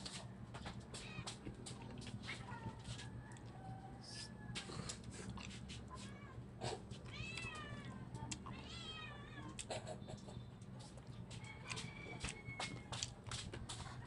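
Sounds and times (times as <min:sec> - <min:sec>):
person eating with fingers: 0:01.3 - 0:08.7, 0:09.4 - 0:14.0
cat meowing: 0:07.0 - 0:09.6.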